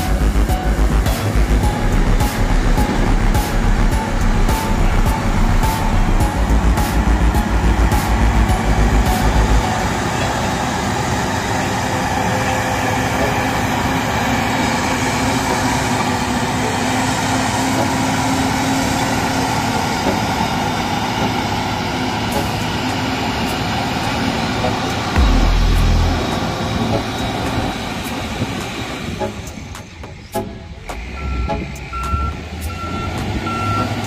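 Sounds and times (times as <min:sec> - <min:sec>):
heavy low rumble: 0:00.0 - 0:17.1, 0:25.0 - 0:29.7
diesel engine running under load: 0:00.0 - 0:34.0.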